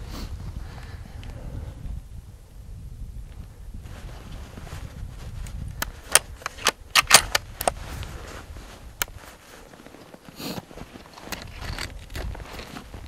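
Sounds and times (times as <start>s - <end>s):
wind rumble on microphone: 0.0s - 13.0s
sharp irregular clicks: 5.8s - 7.8s.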